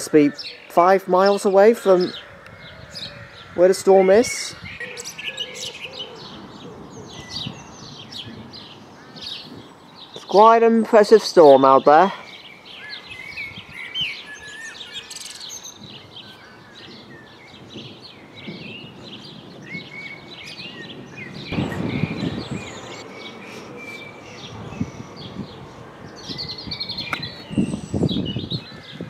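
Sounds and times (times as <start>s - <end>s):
birds chirping and singing: 0.0s - 29.0s
low rushing noise: 21.5s - 26.0s.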